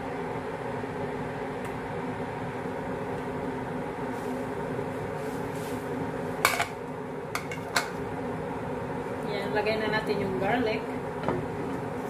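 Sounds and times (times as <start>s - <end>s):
fan hum: 0.0s - 12.0s.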